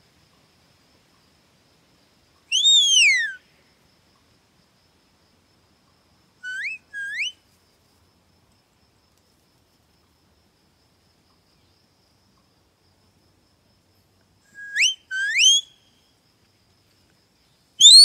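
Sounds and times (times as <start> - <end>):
person whistling: 14.6 - 15.6.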